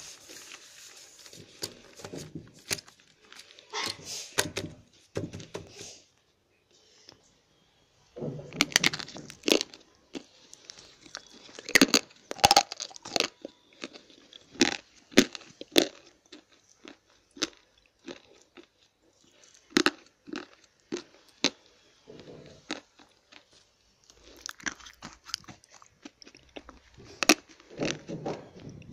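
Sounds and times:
slate pencils crunching: 8.6 - 21.6.

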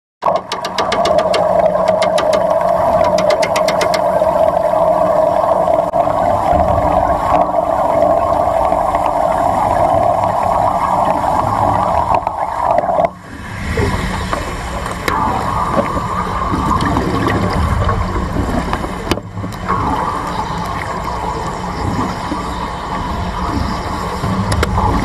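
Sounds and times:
water sounds: 0.2 - 25.0.

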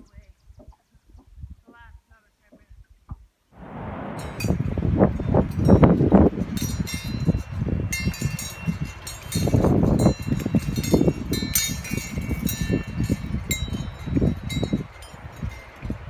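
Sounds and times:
wind buffeting microphone: 0.0 - 16.0
metal wind chime clinking: 4.2 - 16.0.

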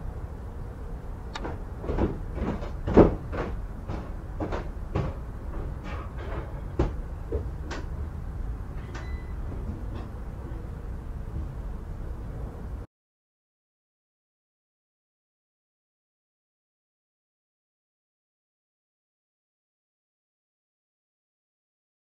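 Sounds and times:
irregular knocks and bumps: 1.4 - 7.9
brief squeak: 8.8 - 9.5.

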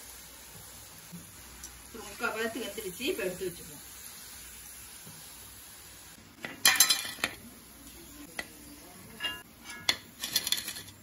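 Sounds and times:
oil sizzling: 0.0 - 11.0
metal skimmer clinking against pan: 9.2 - 10.8.

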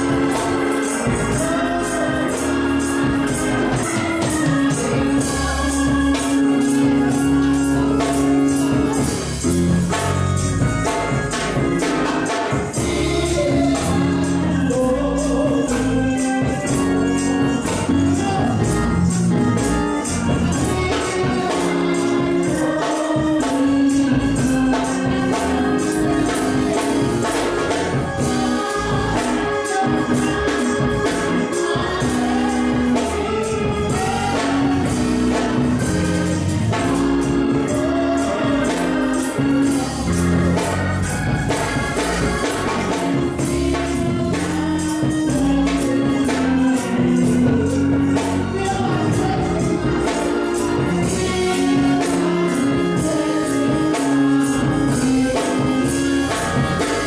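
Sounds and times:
drum kit: 0.0 - 57.0
gospel singing: 0.0 - 57.0
tambourine: 0.0 - 57.0.

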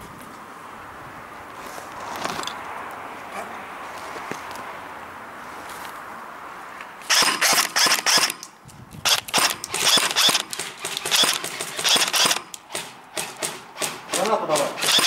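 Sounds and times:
airsoft gun shots: 7.1 - 8.4, 9.1 - 15.0.

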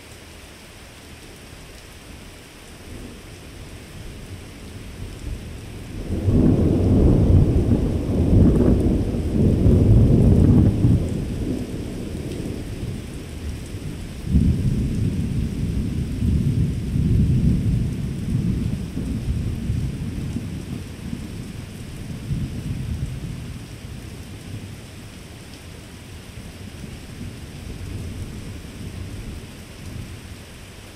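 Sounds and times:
rain hiss: 0.0 - 30.9
thunder rolling: 6.0 - 13.0.

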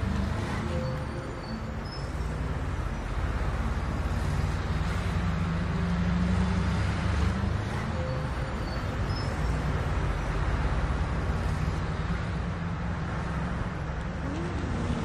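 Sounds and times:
low engine rumble: 0.0 - 15.0
road traffic noise: 0.0 - 15.0.

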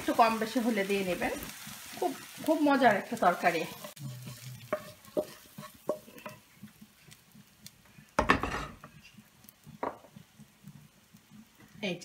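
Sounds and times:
spatula scraping frying pan: 0.1 - 7.5
pan clunking on iron grate: 8.2 - 8.9.

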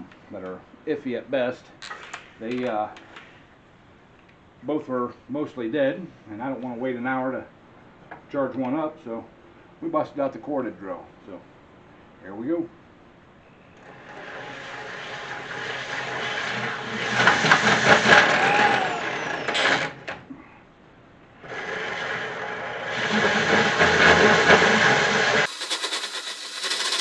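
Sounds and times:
drill hole saw grinding metal: 13.8 - 20.2, 21.4 - 27.0.

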